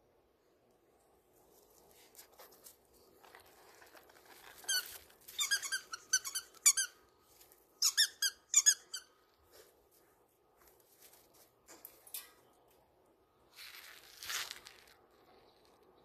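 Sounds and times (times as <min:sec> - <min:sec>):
high-pitched squeaks: 0:04.6 - 0:07.0.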